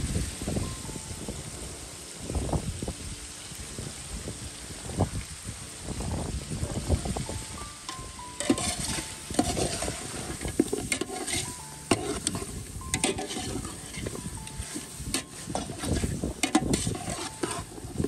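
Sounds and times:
meat sizzling in fat: 0.0 - 18.0
spoon clinking against pot: 7.9 - 10.0, 10.6 - 17.7
spoon scraping in metal pot: 7.9 - 18.0.

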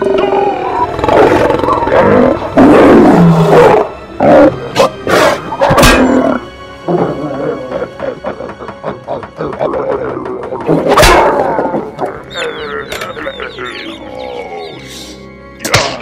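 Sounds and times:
monster roaring and growling: 0.0 - 5.4
music: 0.0 - 16.0.

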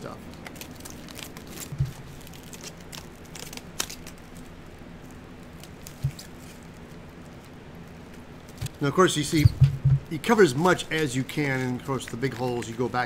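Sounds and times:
plastic stretch wrap crinkling: 0.0 - 9.3, 10.2 - 13.0
soft thump: 9.4 - 10.1.

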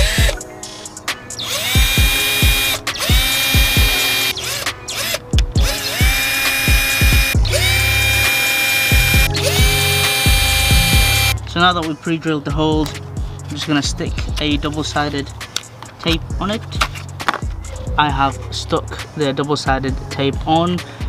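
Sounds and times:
cordless drill whining: 0.0 - 0.4, 1.4 - 11.4.

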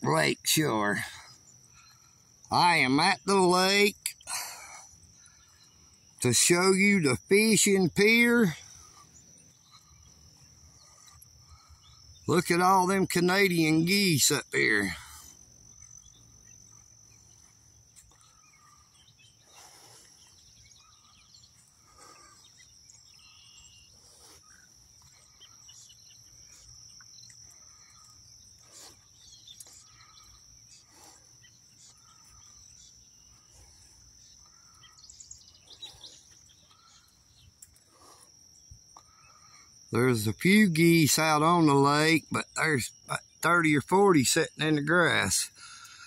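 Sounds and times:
insect drone: 0.0 - 46.0
short bird calls: 14.7 - 27.0.

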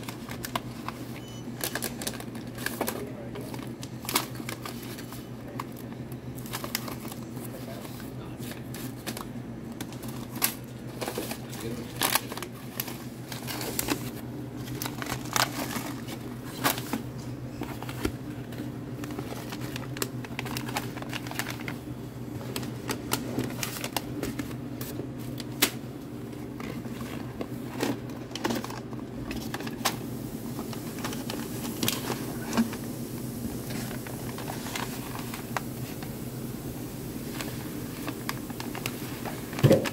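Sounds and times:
paper candy bags crinkling: 0.0 - 39.9.

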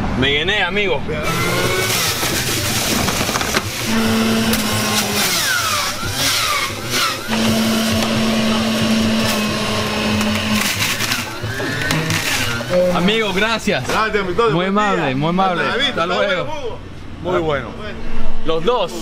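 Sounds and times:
electric juicer motor whirring: 1.2 - 13.2.

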